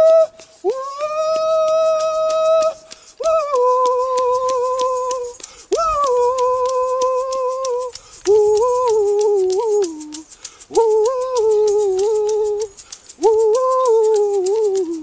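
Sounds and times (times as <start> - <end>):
steady quick clicking: 0.0 - 15.0.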